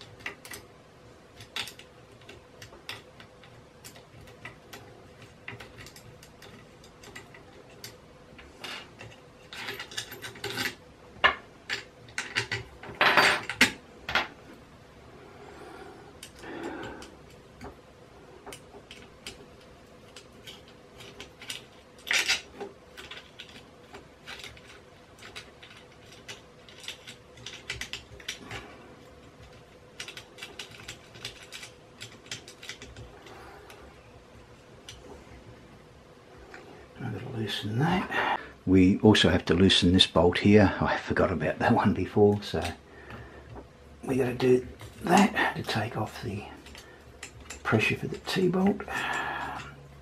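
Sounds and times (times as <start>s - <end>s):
metal parts clattering: 8.6s - 14.3s, 20.1s - 28.6s.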